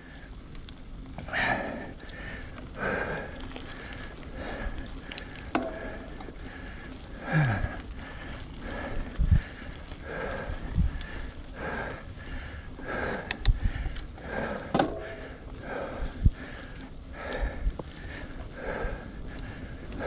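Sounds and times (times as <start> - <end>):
person breathing hard: 1.2 - 20.0
bike knocks: 14.6 - 15.3.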